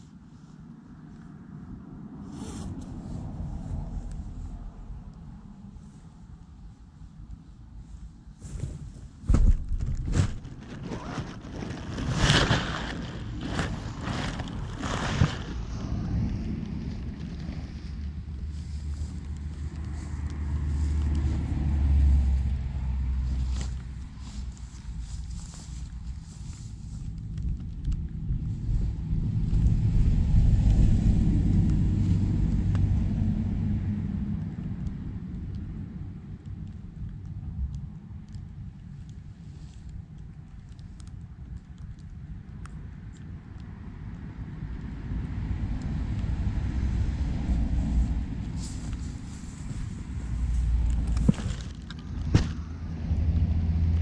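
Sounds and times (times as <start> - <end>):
grass rustling against microphone: 2.2 - 32.6, 46.6 - 53.2
handling rumble: 2.6 - 44.9, 45.6 - 54.0
thump: 9.2 - 10.4.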